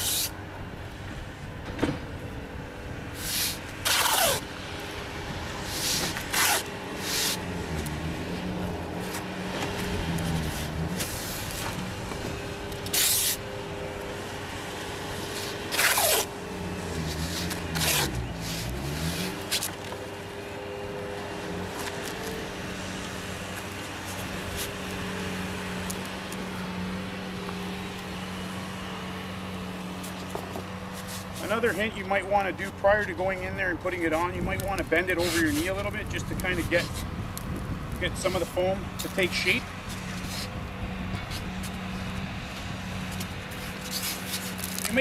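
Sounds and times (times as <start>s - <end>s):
diesel engine running: 0.0s - 45.0s
tape ripping off roll: 3.2s - 4.5s, 5.7s - 8.0s, 12.7s - 13.4s, 15.4s - 16.3s, 16.9s - 20.0s, 43.2s - 45.0s.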